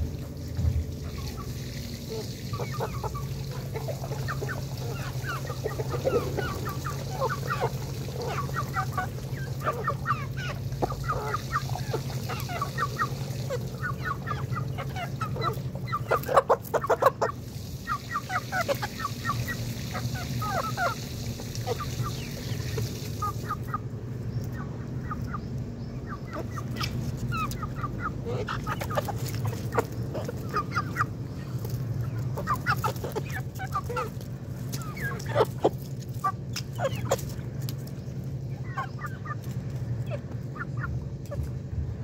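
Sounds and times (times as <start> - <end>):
young fowl chirping: 0.9 - 41.7.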